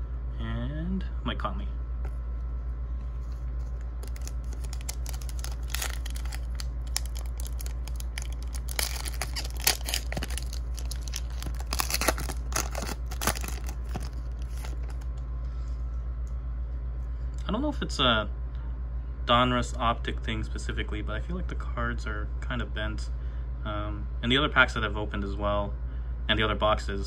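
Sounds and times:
steady low hum: 0.0s - 27.0s
foil wrapper tearing and crinkling: 4.0s - 15.1s.

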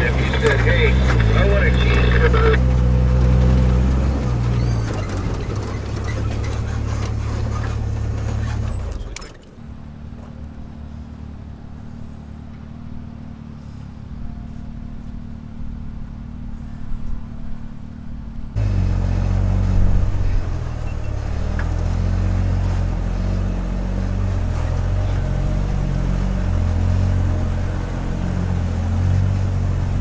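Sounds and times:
engine hum inside vehicle: 0.0s - 30.0s
off-road vehicles running slowly: 0.0s - 30.0s
road and gravel noise: 0.0s - 30.0s.

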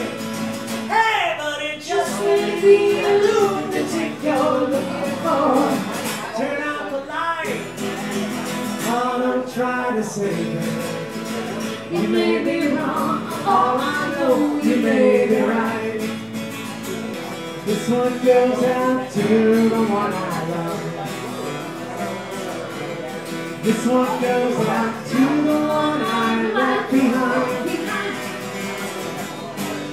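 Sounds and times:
acoustic guitars strummed: 0.0s - 29.9s
person singing: 0.9s - 7.6s, 11.8s - 16.2s, 17.7s - 21.1s, 23.6s - 29.0s.

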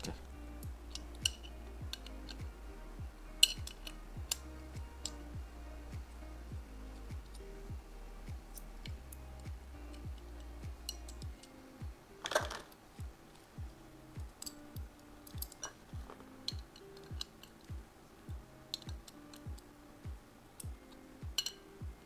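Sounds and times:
background music with steady beat: 0.0s - 22.0s
small metal wrench clicks: 0.6s - 2.5s, 3.4s - 5.2s, 8.5s - 11.6s, 14.3s - 15.8s, 16.4s - 17.7s, 18.7s - 19.7s, 20.6s - 21.7s.

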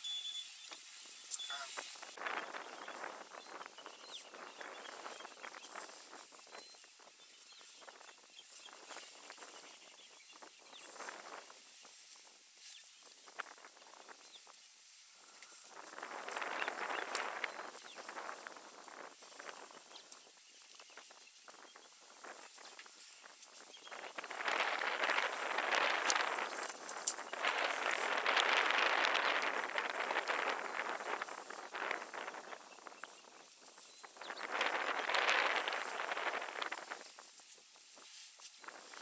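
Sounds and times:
rustling and crackling vegetation: 0.0s - 39.0s
elephants stepping in vegetation: 15.2s - 32.1s, 34.4s - 39.0s.

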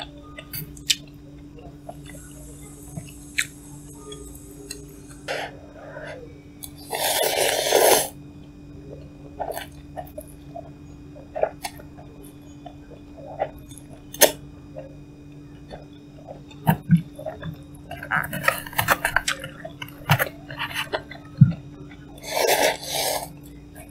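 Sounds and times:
steady low hum: 0.0s - 23.9s
person chewing noodles: 6.7s - 8.2s, 15.7s - 23.9s.

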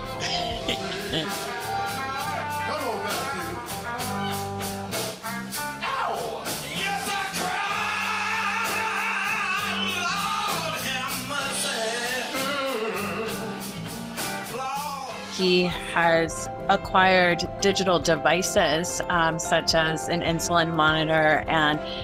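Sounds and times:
man singing blues: 0.0s - 3.9s, 5.7s - 15.8s
drums: 0.0s - 22.0s
electric guitar: 0.0s - 22.0s.

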